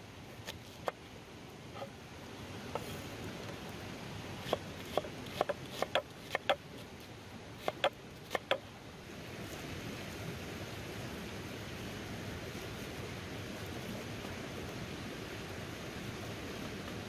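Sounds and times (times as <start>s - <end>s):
steady hiss: 0.0s - 17.0s
knife chopping on wooden board: 4.4s - 6.6s, 7.6s - 8.6s.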